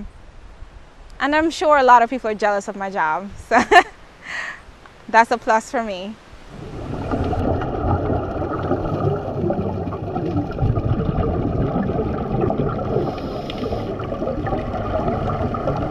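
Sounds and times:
underwater regulator bubbles gurgling: 6.5 - 15.9.

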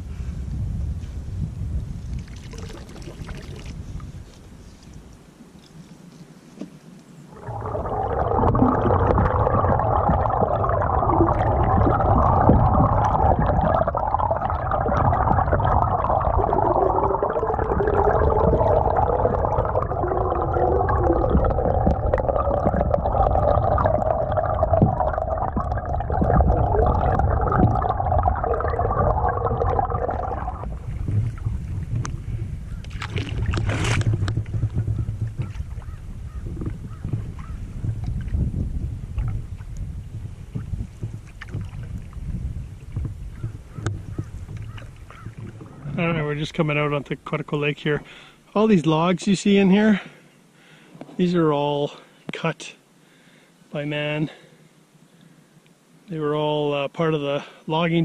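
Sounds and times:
water rushing underwater: 2.2 - 3.8, 7.3 - 37.0.

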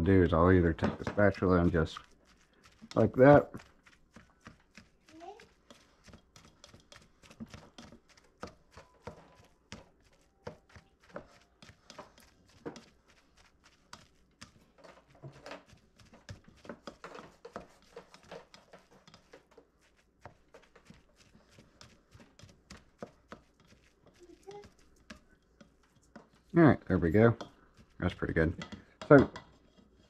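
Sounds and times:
spatula tapping and scraping a bowl: 0.4 - 30.0.

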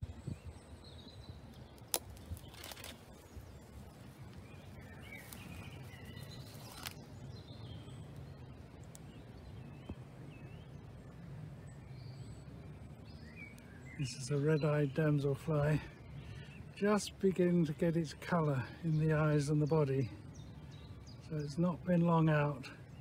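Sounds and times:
rustling shrub branches: 0.0 - 23.0
small birds chirping: 0.0 - 23.0.

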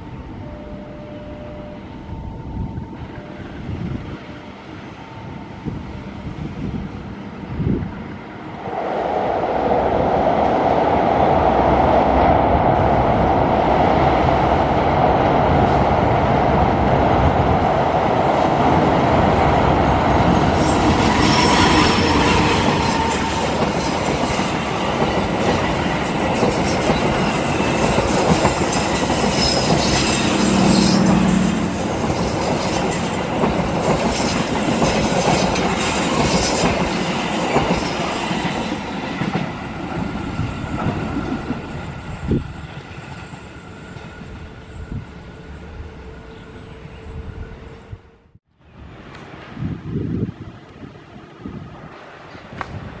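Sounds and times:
diesel locomotive engine: 0.0 - 49.5
train wheels clattering on rails: 18.3 - 44.4.

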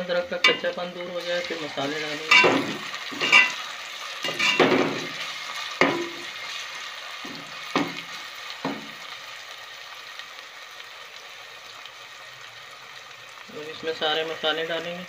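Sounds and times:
onions sizzling in hot oil: 0.0 - 15.0
spoon scraping and knocking pan: 0.4 - 9.0.

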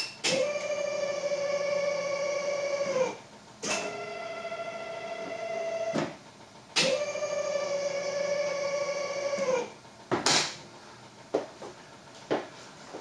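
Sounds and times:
actuator motor whine: 0.2 - 6.2, 6.8 - 9.8.

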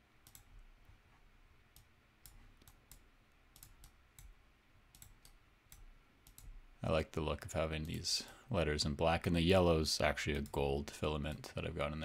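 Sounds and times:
faint computer mouse clicks: 0.2 - 0.5, 1.7 - 6.5.

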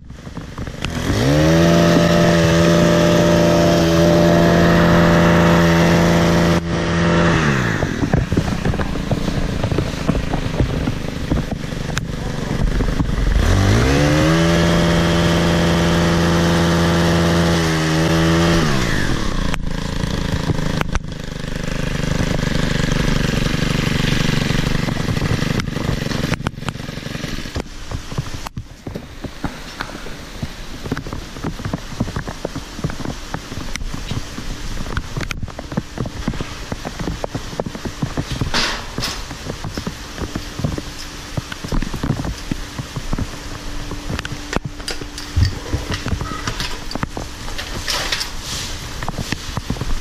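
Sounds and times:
hedge trimmer engine revving: 0.1 - 27.9.

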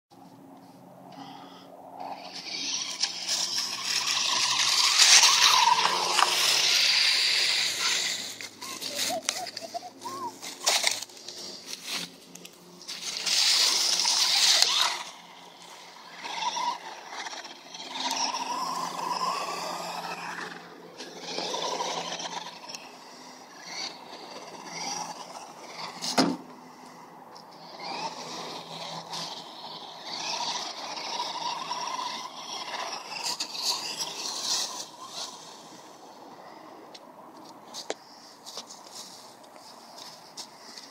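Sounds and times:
wheels scraping on asphalt: 0.2 - 40.9
toy truck motor whining: 1.1 - 36.7
rustle of dry leaves: 2.8 - 17.4.

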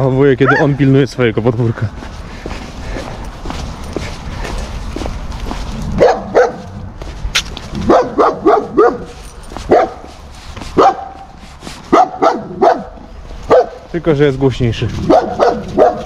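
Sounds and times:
dog barking: 0.4 - 0.8, 6.0 - 6.8, 7.8 - 10.1, 10.8 - 13.9, 15.0 - 16.0.

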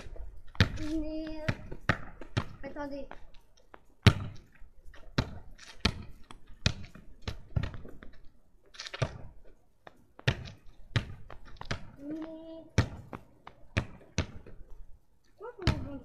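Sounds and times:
football thudding: 4.0 - 4.5.

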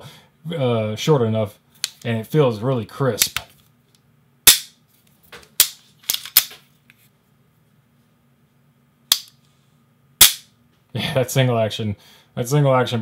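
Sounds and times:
pistol hammer clicks: 9.1 - 9.4.

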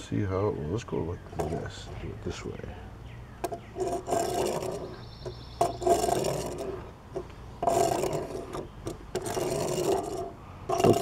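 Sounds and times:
toy tank rolling on wooden table: 1.3 - 1.7, 3.4 - 11.0.

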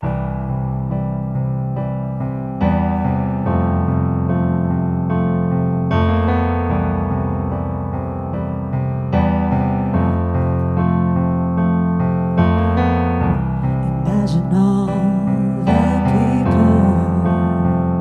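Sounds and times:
digital piano chords: 0.0 - 18.0
woman singing: 13.9 - 17.7.

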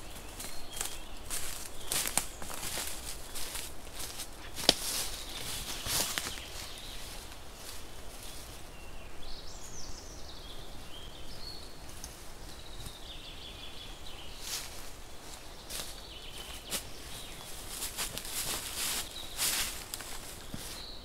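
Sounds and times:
bird singing: 0.0 - 21.0
rustling of leaves and canvas: 0.0 - 21.0.

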